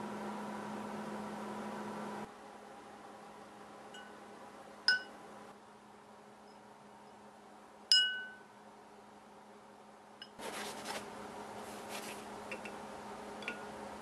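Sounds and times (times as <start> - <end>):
knife blade clinking on glass: 4.9 - 5.1
paper towel rustling: 10.4 - 12.4.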